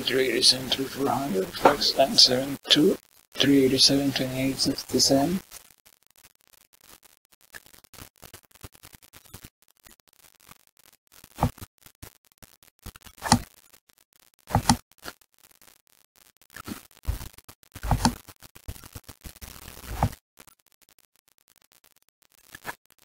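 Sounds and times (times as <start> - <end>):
mouse and keyboard clicks: 14.5 - 14.8, 17.9 - 18.2.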